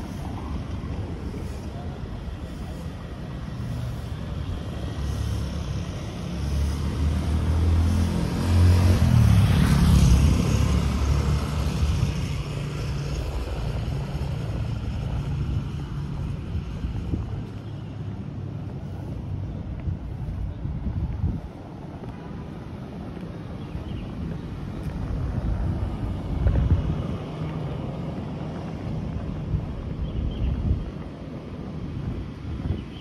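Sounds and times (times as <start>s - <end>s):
traffic rumble: 0.0s - 33.0s
vehicle driving past: 3.5s - 16.4s.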